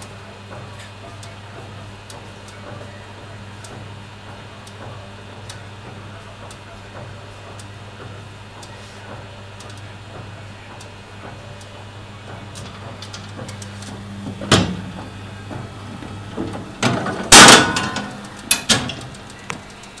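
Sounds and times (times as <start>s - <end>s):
machinery humming: 0.0s - 20.0s
metal knocks: 12.3s - 19.2s.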